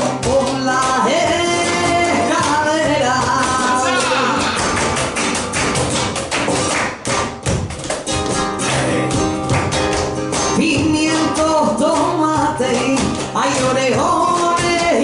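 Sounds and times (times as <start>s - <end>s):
person singing: 0.0s - 4.9s, 10.6s - 15.0s
cajon drum: 0.0s - 15.0s
flamenco guitar strumming: 0.0s - 15.0s
footwork striking stage: 0.0s - 15.0s
hand claps: 3.2s - 12.2s.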